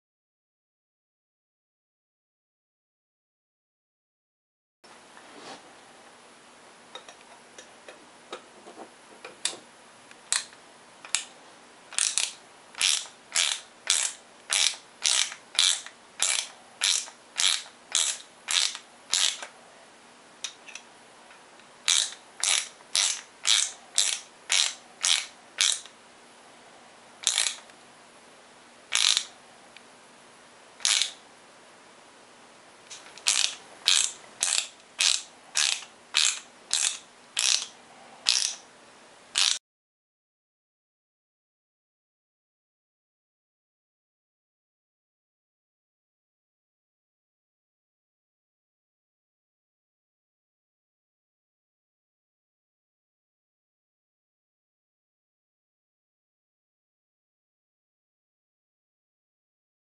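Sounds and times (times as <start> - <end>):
screwdriver scraping knife handle: 11.9 - 19.5, 21.9 - 25.9, 27.2 - 27.7, 28.9 - 29.3, 30.8 - 31.2, 32.9 - 38.6, 39.4 - 39.6.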